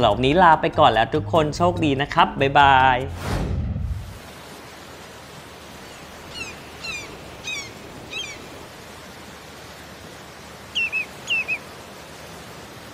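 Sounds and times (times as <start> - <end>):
ocean waves hissing: 3.1 - 12.9
high bird chirps sliding down: 6.2 - 8.6, 10.7 - 11.8.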